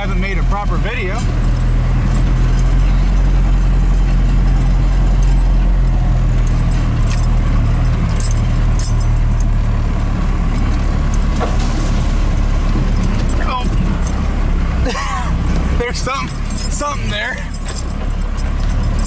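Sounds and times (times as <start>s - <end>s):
truck engine droning: 0.0s - 19.0s
light clinks and rattles: 0.9s - 11.5s, 12.6s - 19.0s.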